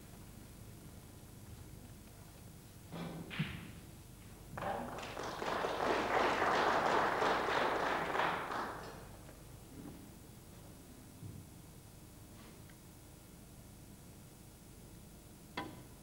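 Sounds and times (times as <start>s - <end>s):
audience applause in a hall: 4.6s - 9.5s.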